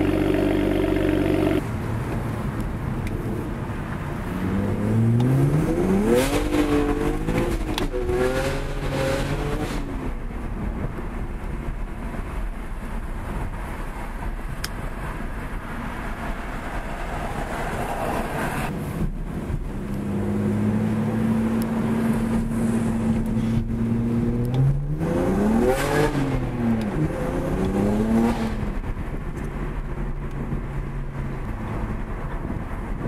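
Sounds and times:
car engine revving: 0.0s - 1.7s, 4.2s - 10.2s, 19.5s - 29.0s
car exhaust drone: 0.0s - 13.6s, 16.4s - 33.0s.

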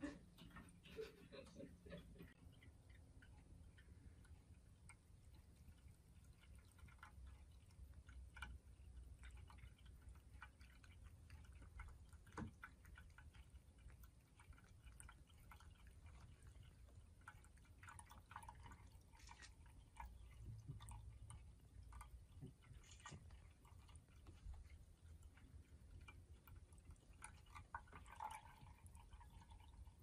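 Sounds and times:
cat lapping water: 0.0s - 30.0s
water dripping in fountain: 0.8s - 30.0s.

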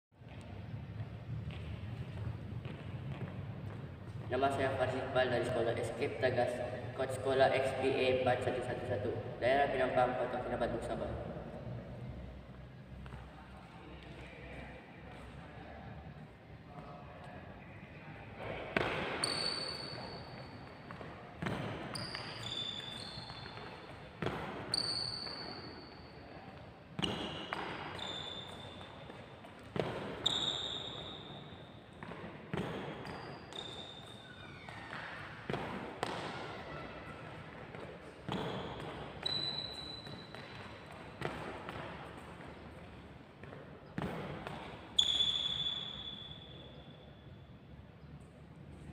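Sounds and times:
shoe squeaks: 19.0s - 35.4s, 36.4s - 41.3s, 44.6s - 47.4s.

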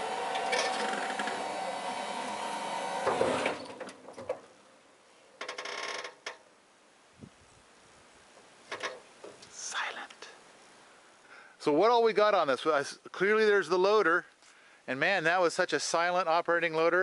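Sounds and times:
hydraulic pump whining: 0.0s - 4.4s.

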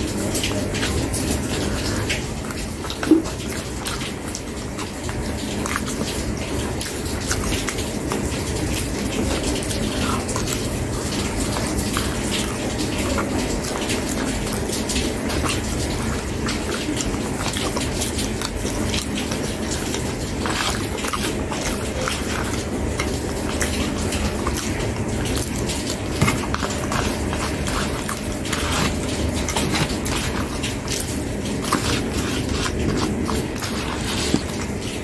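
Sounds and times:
wet chewing: 0.0s - 35.0s
spoon scraping a bowl: 15.1s - 34.8s.

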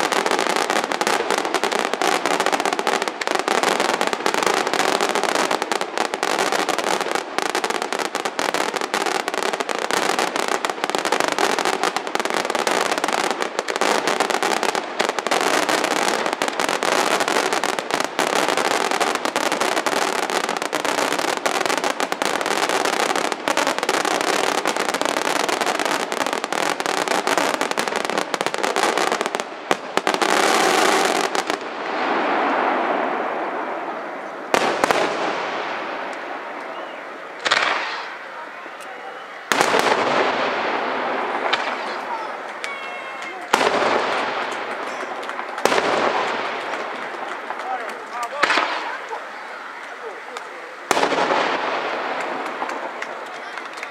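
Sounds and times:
firework bangs and crackling: 0.0s - 53.9s.

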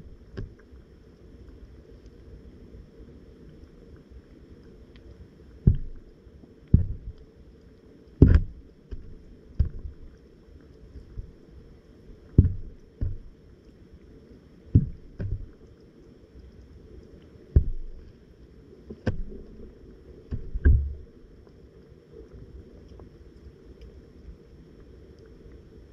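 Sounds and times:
dull knocks on camera: 8.2s - 9.9s, 12.4s - 13.3s, 14.8s - 15.5s, 17.6s - 17.9s, 20.3s - 21.0s.

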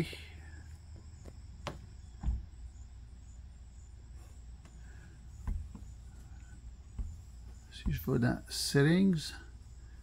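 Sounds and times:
soft low thump: 1.6s - 2.6s, 5.4s - 6.0s.

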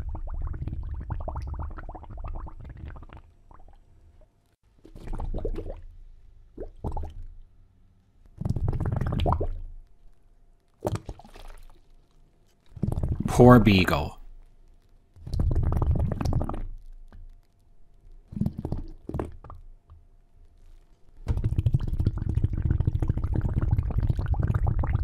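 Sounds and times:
water bubbling and gurgling: 0.0s - 3.8s, 5.0s - 5.9s, 8.7s - 9.7s.

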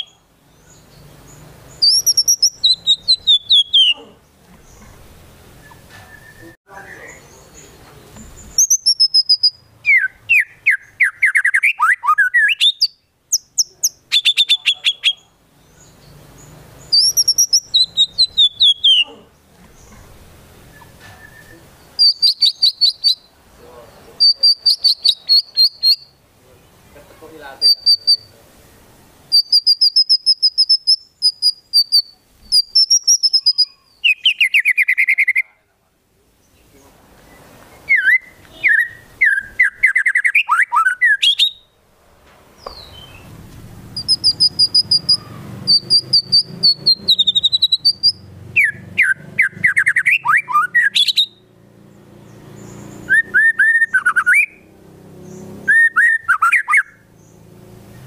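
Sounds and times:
bird singing high notes: 0.0s - 4.2s, 43.9s - 51.5s, 52.6s - 57.4s
bird singing varied song: 0.0s - 41.8s, 42.6s - 58.0s.

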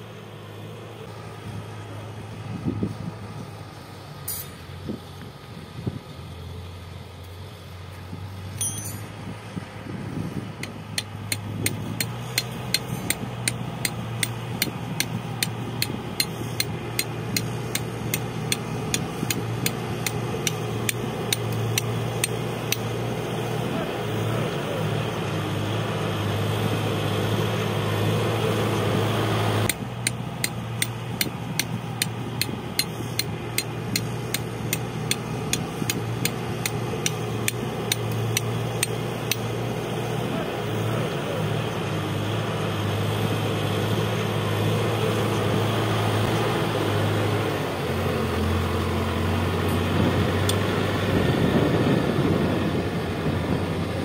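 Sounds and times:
diesel engine droning: 0.0s - 54.0s
sharp regular clicks: 10.6s - 22.9s, 29.6s - 39.5s.

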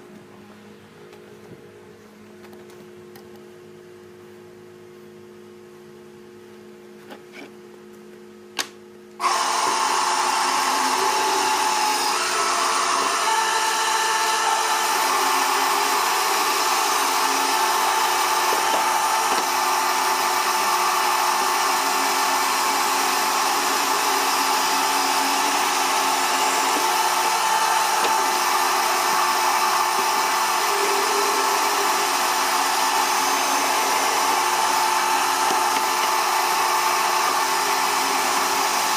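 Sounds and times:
band saw whining: 9.2s - 38.9s.

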